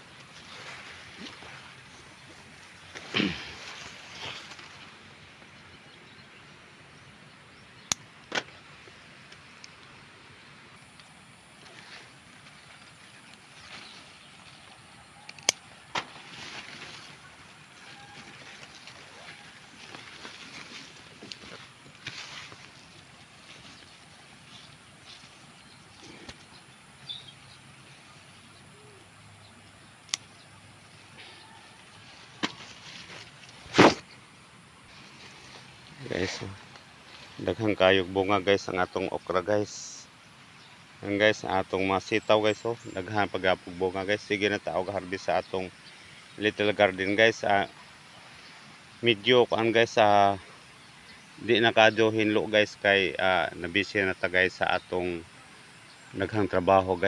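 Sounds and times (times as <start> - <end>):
faint bird calls: 0.0 - 51.8
pruning shears snipping: 15.2 - 17.2, 30.0 - 30.4, 32.4 - 34.1.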